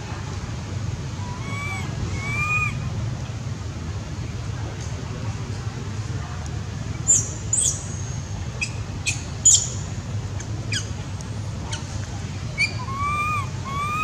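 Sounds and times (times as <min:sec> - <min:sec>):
whistle-like coo calls: 0:12.6 - 0:14.0.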